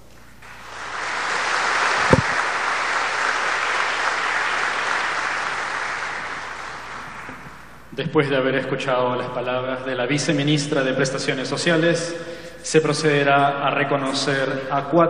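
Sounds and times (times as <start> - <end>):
audience applauding: 0.4 - 7.8
low thump: 2.1 - 2.4.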